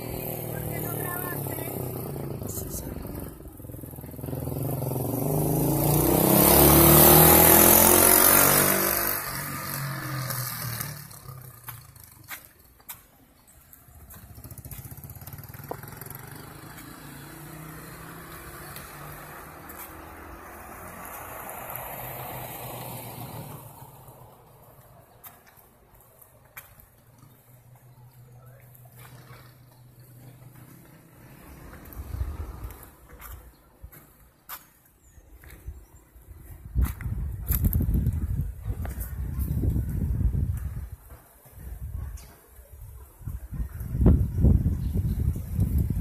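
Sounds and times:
vehicle driving past: 0.0 - 12.5, 14.0 - 24.9, 28.7 - 33.4
street traffic noise: 0.0 - 46.0.

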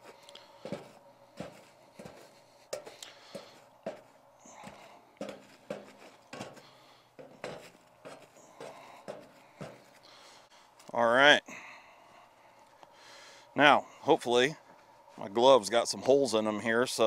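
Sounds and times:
shovel scraping foil and charcoal: 0.0 - 10.1.

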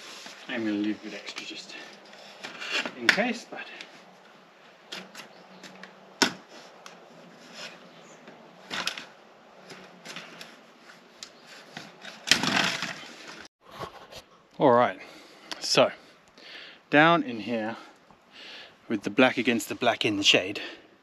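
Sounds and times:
plastic pipe rustling and scraping: 0.0 - 14.3.

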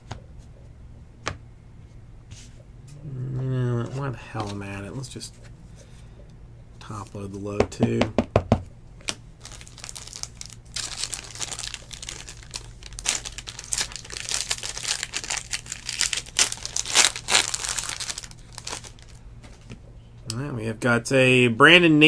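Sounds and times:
foil wrapper crinkling and tearing: 9.4 - 19.2.

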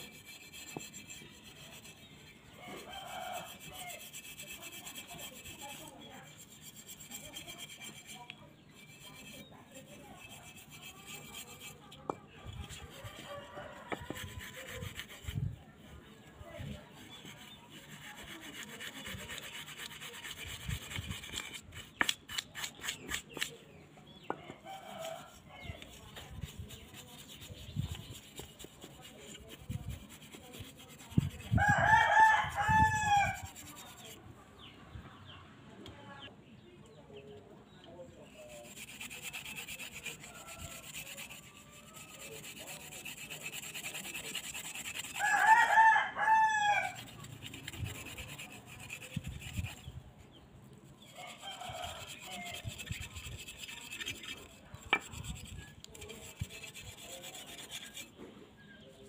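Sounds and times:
wire brush scrubbing metal: 0.0 - 23.6, 24.6 - 34.2, 38.2 - 50.0, 51.0 - 58.2
rooster crowing: 31.6 - 33.4, 45.2 - 47.0.

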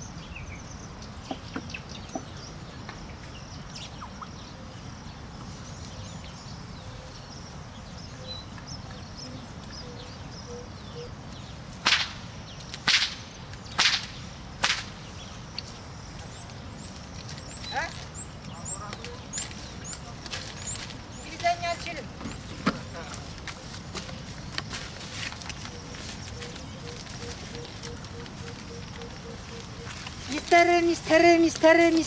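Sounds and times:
whip cracks: 11.8 - 12.2, 12.8 - 15.0.

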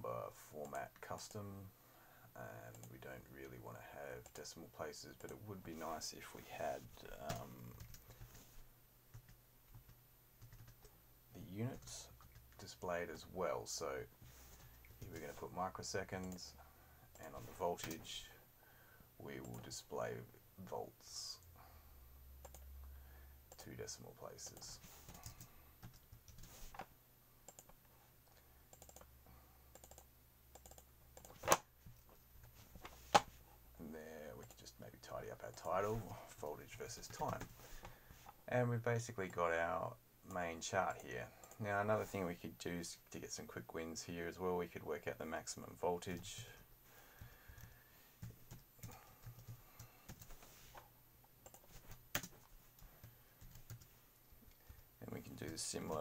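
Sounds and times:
faint keyboard typing: 2.6 - 13.3, 14.1 - 18.3, 19.3 - 20.8, 22.4 - 22.9, 23.5 - 33.4, 34.2 - 38.4, 40.3 - 41.8, 46.0 - 56.0.

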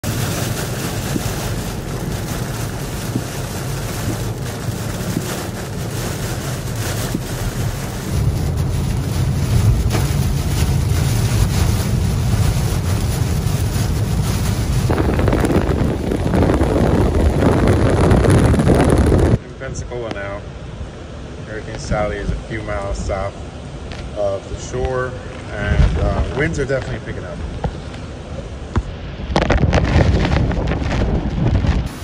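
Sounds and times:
wind rushing: 0.0 - 19.4, 27.4 - 32.0
car road rumble: 0.0 - 32.0
heavy rain: 0.0 - 32.0.

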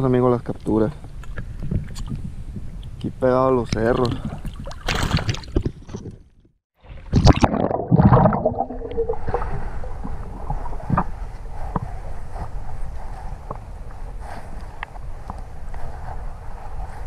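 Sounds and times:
water splashing and bubbling: 3.9 - 6.2, 6.8 - 11.1.

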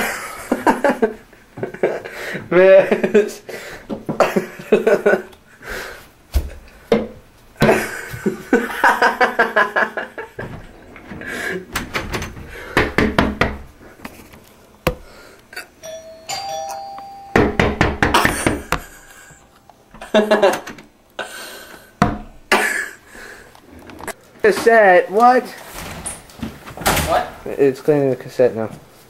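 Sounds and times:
knocking on a door: 12.7 - 13.7, 17.4 - 18.6
doorbell chiming: 15.8 - 17.8.

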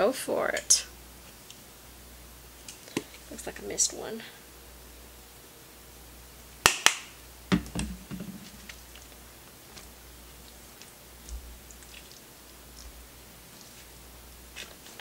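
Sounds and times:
rustles of handling chicken: 8.3 - 15.0.

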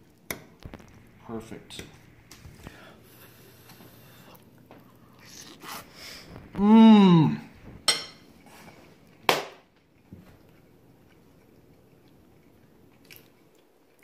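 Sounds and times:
man humming with mouth full: 6.6 - 7.5.

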